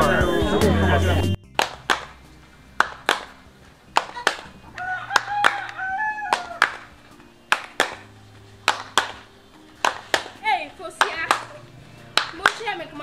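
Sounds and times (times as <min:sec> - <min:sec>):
hand claps: 0:01.6 - 0:02.2, 0:02.8 - 0:04.5, 0:05.2 - 0:06.8, 0:07.5 - 0:08.0, 0:08.7 - 0:12.8
rooster crowing: 0:04.1 - 0:07.0.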